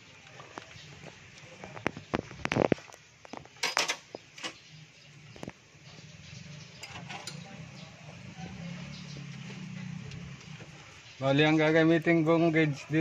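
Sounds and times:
metal hand tools clinking: 6.8 - 7.5.

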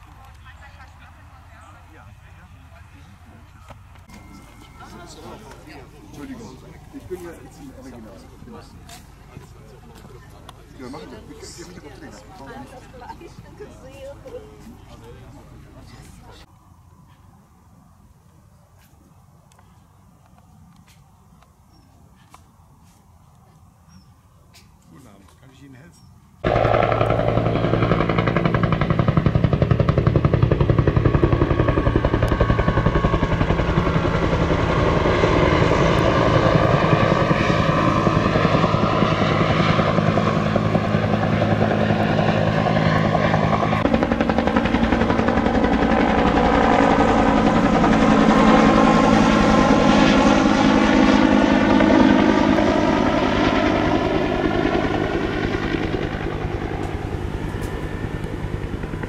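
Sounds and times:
helicopter rotor beat: 26.4 - 59.0.

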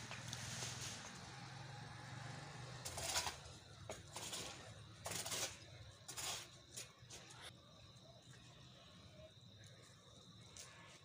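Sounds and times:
fire crackling: 0.0 - 1.5.

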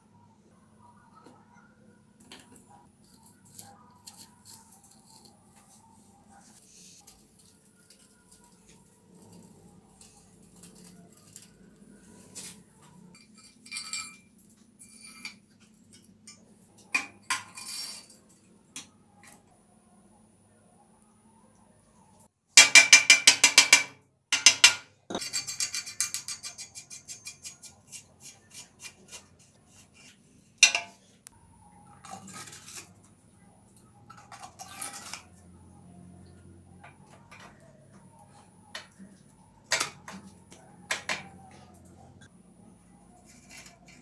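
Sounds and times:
metal bicycle parts clinking: 7.1 - 11.7, 13.1 - 18.5, 30.6 - 31.0, 34.1 - 35.4.

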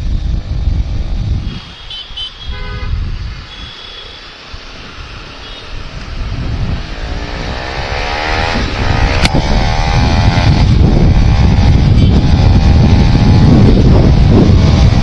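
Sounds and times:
vehicle horn toots: 1.5 - 4.3, 11.9 - 12.3
motorcycle engine accelerating: 5.0 - 15.0.

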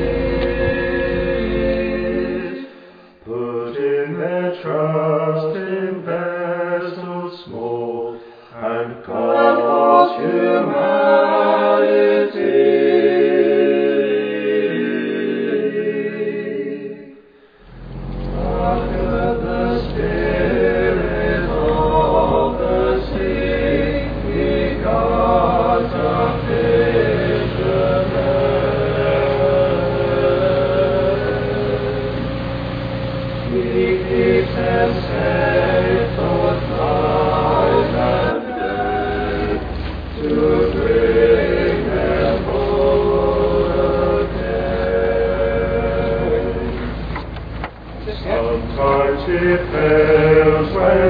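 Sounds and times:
low rumble: 0.0 - 2.5, 17.6 - 51.0
group singing unaccompanied: 0.0 - 51.0.

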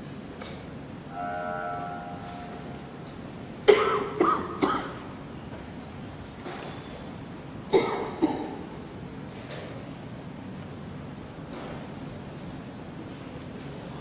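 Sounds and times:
person coughing: 3.7 - 5.0, 7.7 - 8.6.

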